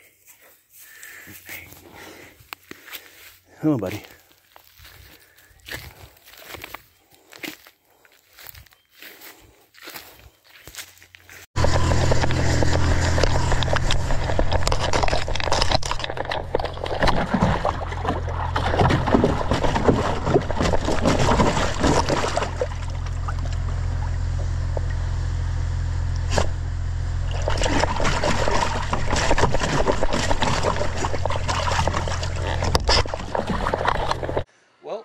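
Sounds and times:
steady low hum: 0:11.6 - 0:34.5
dog lapping water: 0:14.2 - 0:23.6, 0:27.3 - 0:34.5.

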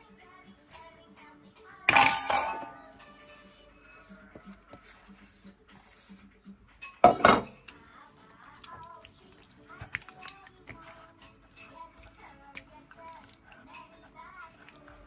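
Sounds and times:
wet squelches: 0:07.7 - 0:11.1, 0:11.9 - 0:15.0.

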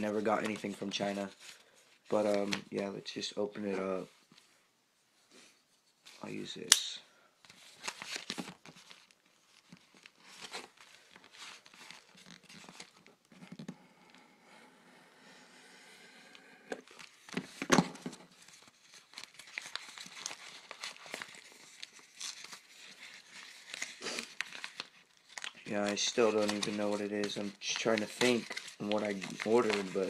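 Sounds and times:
envelope being torn open: 0:18.3 - 0:30.0
packaging crinkling: 0:18.3 - 0:30.0.

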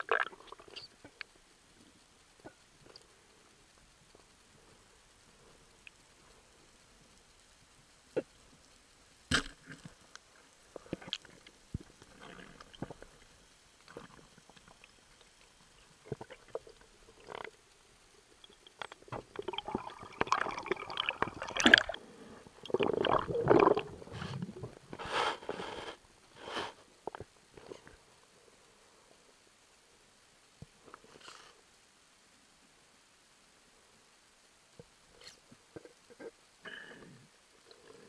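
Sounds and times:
underwater bubbling and rubbing: 0:10.7 - 0:27.9.

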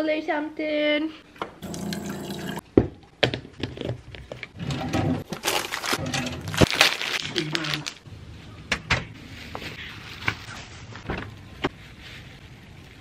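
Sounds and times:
water running into plastic cup: 0:01.6 - 0:02.6
plastic packets rustling: 0:05.2 - 0:08.1.

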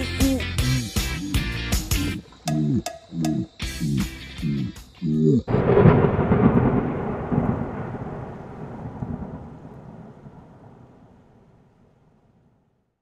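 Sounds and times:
thunder-like rumbling boom: 0:05.5 - 0:11.4.

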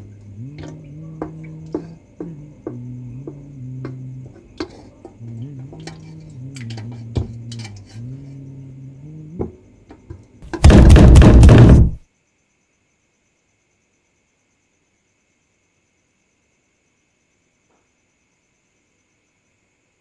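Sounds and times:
loud rapid banging: 0:10.4 - 0:12.0.

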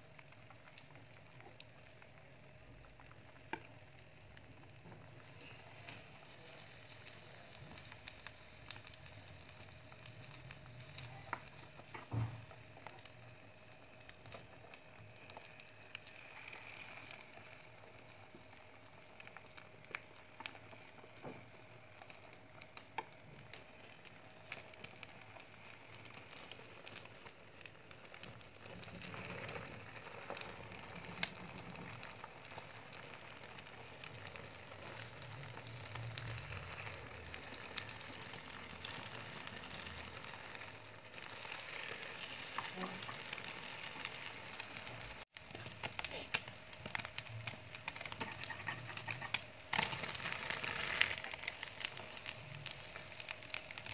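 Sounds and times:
omelette sizzling in frying pan: 0:00.0 - 0:53.9
chopsticks tapping pan: 0:47.9 - 0:50.2.

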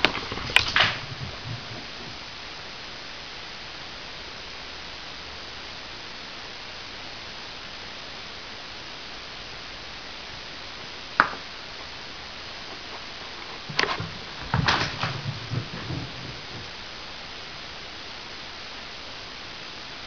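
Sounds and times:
knocks and rattles: 0:00.0 - 0:02.2, 0:13.5 - 0:16.9
steady hiss: 0:00.0 - 0:20.0.

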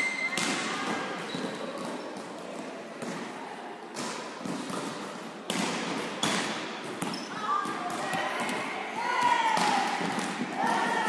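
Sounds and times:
volleyball smacks echoing: 0:03.9 - 0:11.0.

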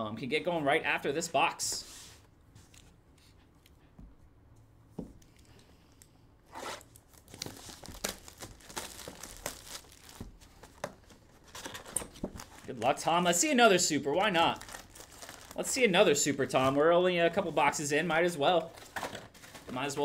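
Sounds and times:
plastic wrap crinkling and tearing: 0:06.8 - 0:13.3, 0:14.1 - 0:16.7.

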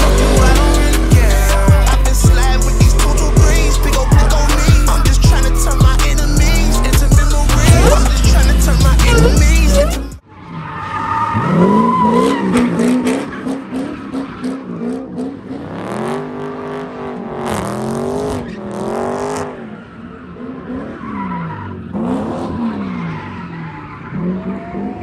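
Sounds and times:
car engines revving hard: 0:00.0 - 0:10.2, 0:11.1 - 0:25.0
tyres squealing: 0:00.0 - 0:15.3.

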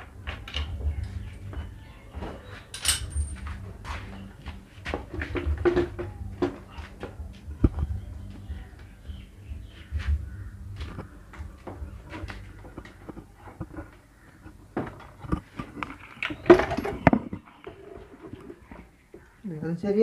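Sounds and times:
metal tools clinking: 0:02.7 - 0:03.4.

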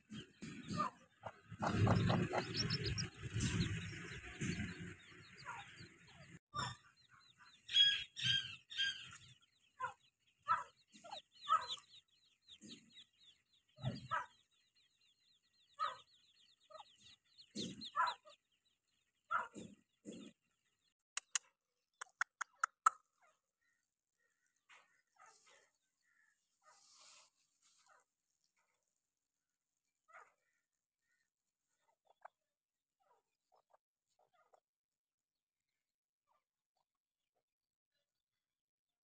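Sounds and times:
hen clucking calls: 0:00.0 - 0:12.9
chicks peeping: 0:00.0 - 0:21.3, 0:31.8 - 0:32.3
sharp ticks: 0:21.2 - 0:23.0.

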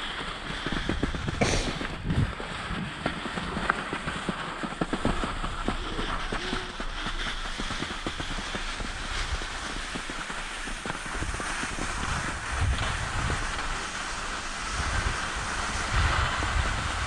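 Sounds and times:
skis scraping over snow: 0:00.0 - 0:17.0
wind buffeting microphone: 0:00.0 - 0:17.0.

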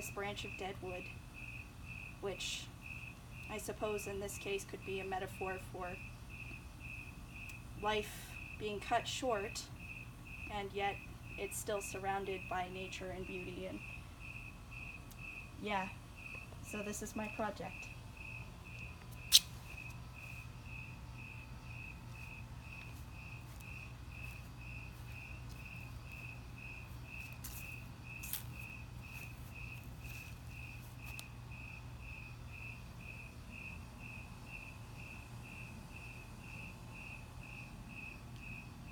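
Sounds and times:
cricket chirping: 0:00.4 - 0:03.6, 0:05.4 - 0:07.7, 0:09.8 - 0:12.6, 0:13.3 - 0:38.9
sharp click: 0:19.2 - 0:19.6.

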